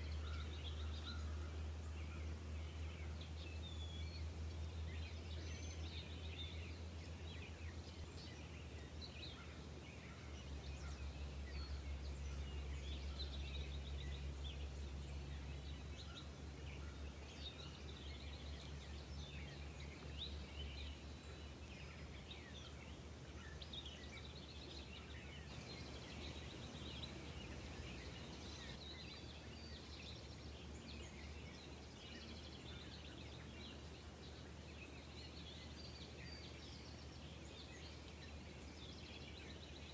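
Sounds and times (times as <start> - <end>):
small birds chirping: 0.0 - 39.9
steady low rumble: 25.5 - 28.8.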